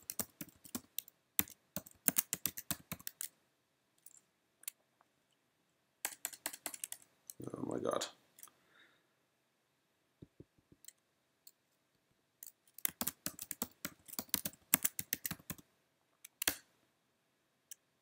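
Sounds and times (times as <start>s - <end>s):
laptop keyboard typing: 0.0s - 3.4s, 6.0s - 7.1s, 12.4s - 15.7s.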